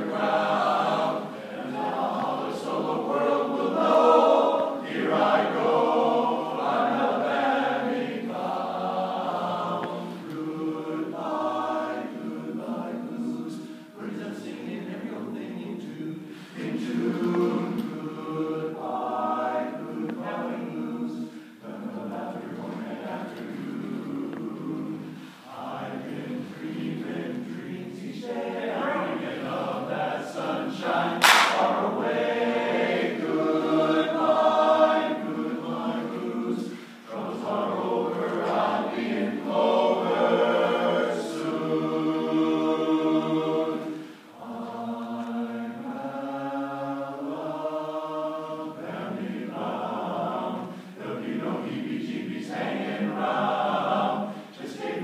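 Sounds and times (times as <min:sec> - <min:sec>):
men's chorus singing a cappella: 0:00.0 - 0:55.0
sharp smack: 0:31.2 - 0:31.7.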